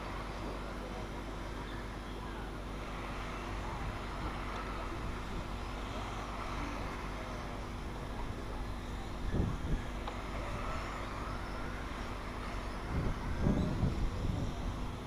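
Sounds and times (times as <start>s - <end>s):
electric motors whining: 0.0s - 15.0s
steady hiss: 0.0s - 15.0s.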